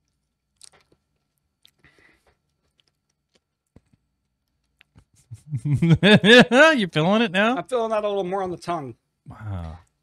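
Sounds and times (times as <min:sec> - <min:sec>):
person chewing: 0:00.0 - 0:05.5.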